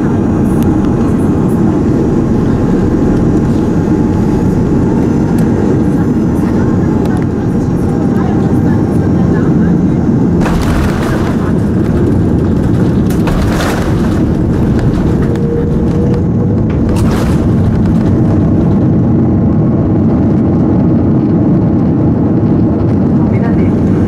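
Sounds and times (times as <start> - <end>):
aircraft wheels and engines rumbling: 0.0 - 24.0
thumps: 10.4 - 19.1.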